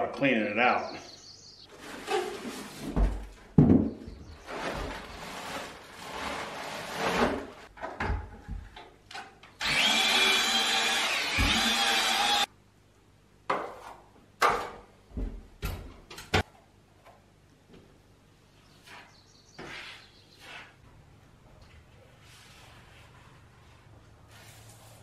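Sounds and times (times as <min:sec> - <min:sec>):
cordless drill mixing: 0:09.6 - 0:12.5.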